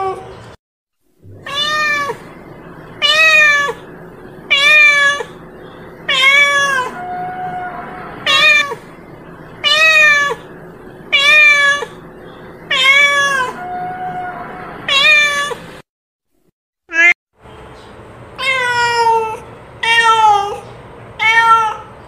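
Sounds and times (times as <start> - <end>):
cat meowing: 1.3 - 2.3, 3.0 - 3.8, 4.5 - 5.4, 6.1 - 8.8, 9.6 - 10.5, 11.1 - 12.0, 12.7 - 15.6, 18.4 - 20.6, 21.2 - 21.9.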